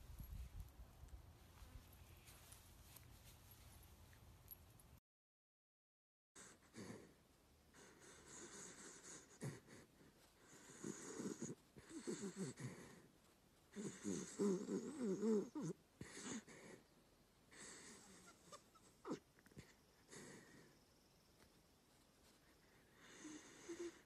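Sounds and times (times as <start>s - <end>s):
dog snoring: 7.8s - 13.1s, 13.7s - 16.8s, 17.5s - 20.7s, 23.0s - 24.0s.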